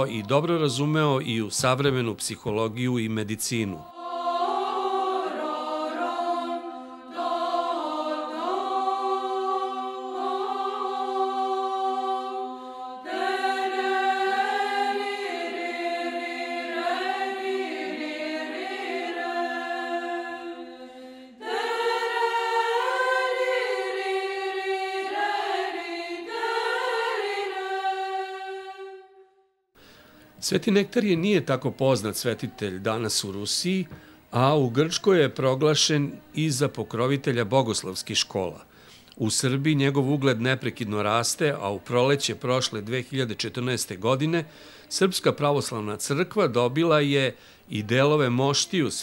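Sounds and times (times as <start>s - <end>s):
choir chanting: 0.0s - 1.5s, 3.6s - 29.4s.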